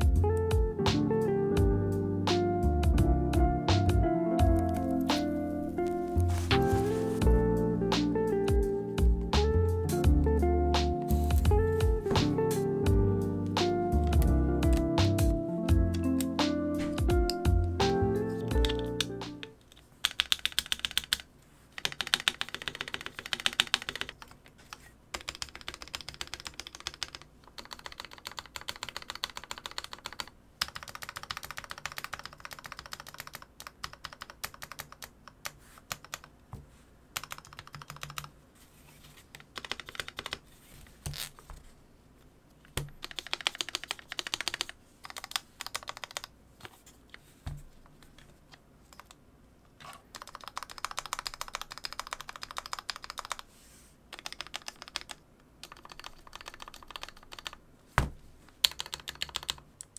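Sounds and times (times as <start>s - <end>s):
keyboard keys clacking: 0.0s - 21.2s, 37.2s - 38.3s, 54.2s - 57.6s.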